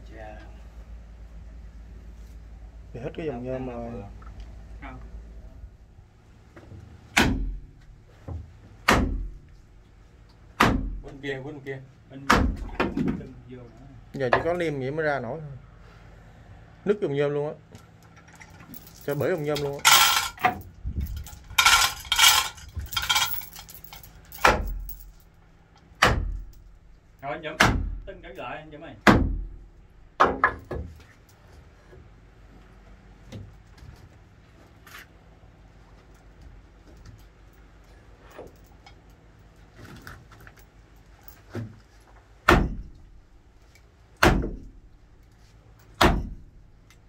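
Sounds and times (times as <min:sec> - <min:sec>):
sharp knocks: 0:07.2 - 0:07.6, 0:08.8 - 0:09.4, 0:10.6 - 0:11.0, 0:12.3 - 0:13.2, 0:42.5 - 0:43.0, 0:44.2 - 0:44.7, 0:46.0 - 0:46.4
ringing metallic clanks: 0:18.7 - 0:25.2.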